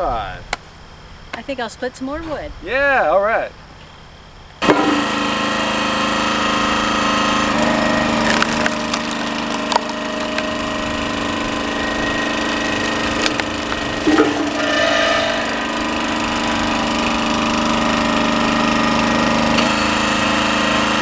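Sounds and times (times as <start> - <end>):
small gas engine running: 4.6 - 21.0
log cracking and snapping: 8.2 - 10.8, 12.8 - 14.0.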